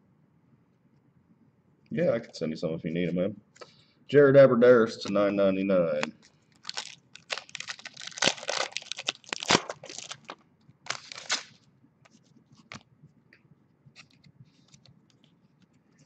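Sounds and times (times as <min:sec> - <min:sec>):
foil wrapper tearing and crinkling: 0:06.6 - 0:11.6.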